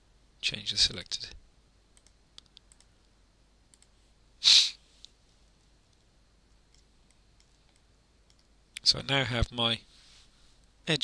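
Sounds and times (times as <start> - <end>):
computer mouse clicks: 2.0 - 2.9, 3.7 - 4.0, 6.7 - 8.5
person sniffing: 4.4 - 4.9.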